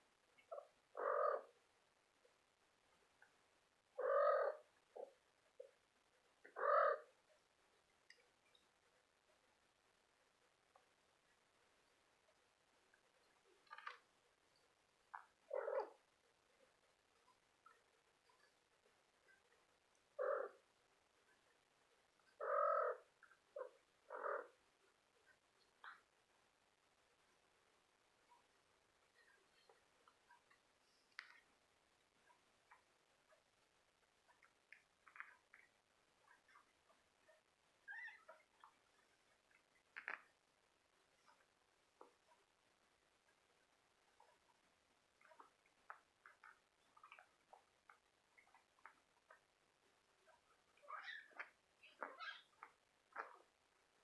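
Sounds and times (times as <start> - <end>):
faint squeaks: 36.3 - 40.3, 50.2 - 53.5.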